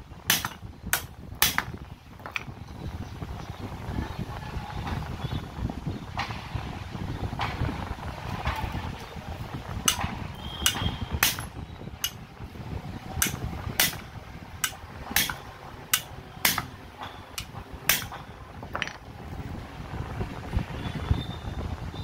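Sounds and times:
hammer striking steel: 0.3s - 1.7s, 9.9s - 12.2s, 13.2s - 18.2s.

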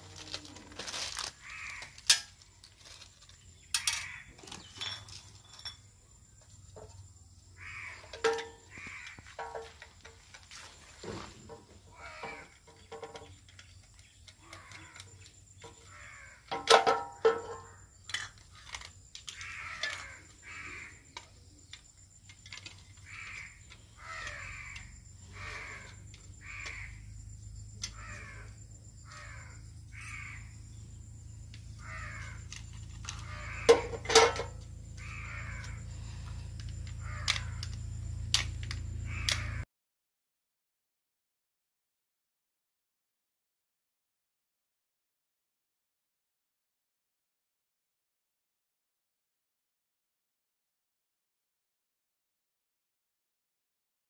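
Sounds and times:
crows cawing: 0.9s - 2.2s, 3.8s - 4.4s, 7.6s - 9.8s, 11.9s - 12.7s, 14.4s - 16.7s, 18.6s - 21.2s, 23.0s - 27.2s, 27.8s - 30.6s, 31.7s - 37.8s, 39.0s - 39.6s
loud knocks of handled parts: 7.9s - 20.3s, 31.9s - 35.9s.

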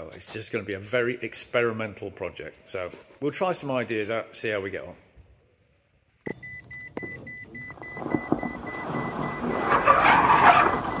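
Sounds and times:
car tyre and road noise: 7.0s - 11.0s.

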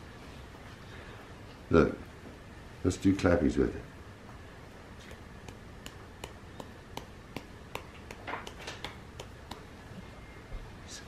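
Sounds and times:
hands clapping and pressing putty: 5.1s - 9.7s.

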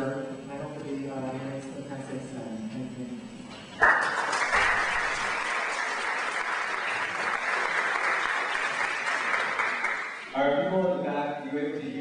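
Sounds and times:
audience applauding: 3.8s - 10.3s.

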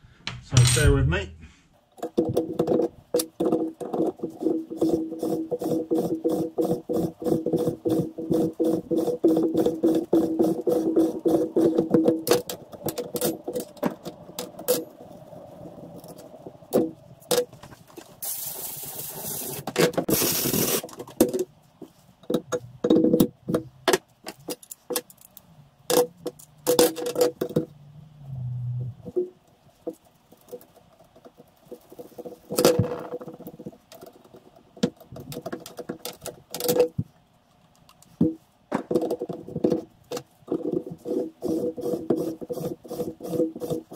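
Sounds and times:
hissing bursts: 18.1s - 20.9s.

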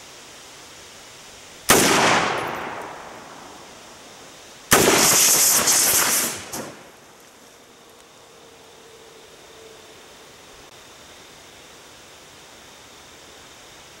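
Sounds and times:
loud hissing rushing noise: 0.0s - 7.8s
rifle shots: 1.7s - 3.7s, 4.7s - 6.9s.

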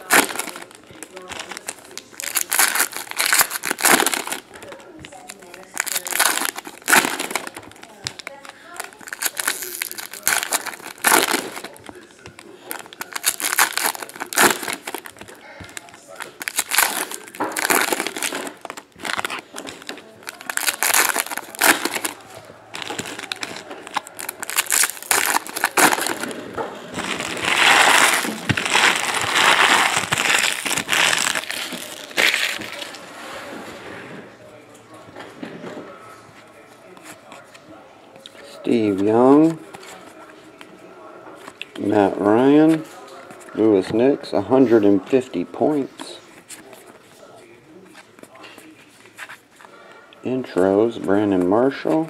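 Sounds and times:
foil wrappers tearing and crinkling: 0.0s - 33.0s.

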